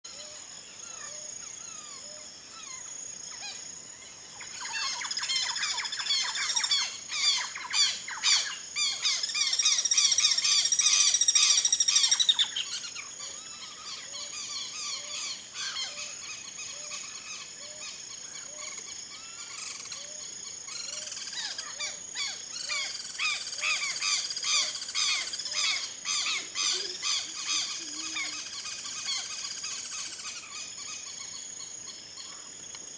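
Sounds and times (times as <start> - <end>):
high insect drone: 0.1 - 32.9
parrots chattering: 21.4 - 29.4.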